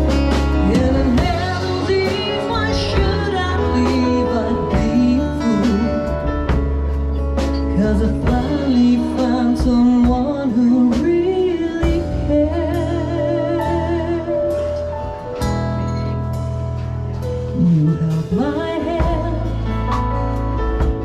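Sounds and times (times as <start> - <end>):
woman singing: 0.0 - 6.6, 7.6 - 14.9, 17.5 - 20.4.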